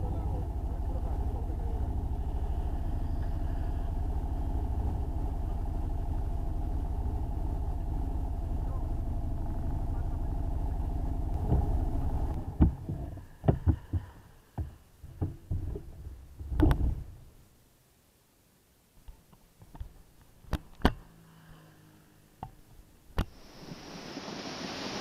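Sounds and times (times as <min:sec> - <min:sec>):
small motorcycle engine idling: 0:00.0 - 0:17.3
camera knocks and rattles: 0:12.4 - 0:17.0.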